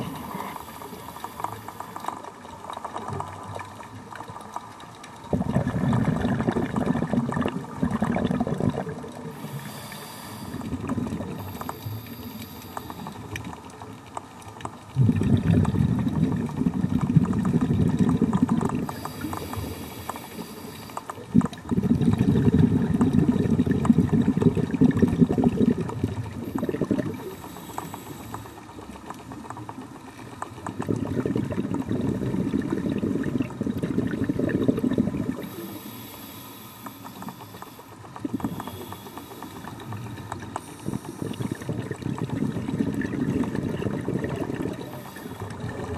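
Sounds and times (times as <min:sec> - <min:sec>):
faint hiss of inhalation: 0:00.0 - 0:02.1, 0:09.3 - 0:13.3, 0:18.8 - 0:21.1, 0:26.5 - 0:28.7, 0:35.4 - 0:41.8, 0:44.8 - 0:45.6
exhaled bubbles rumbling underwater: 0:00.0 - 0:45.9.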